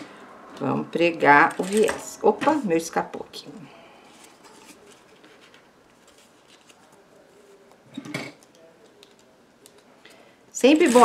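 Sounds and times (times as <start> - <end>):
fabric and plastic rustling: 1.4 - 2.7, 4.1 - 7.6, 10.6 - 11.0.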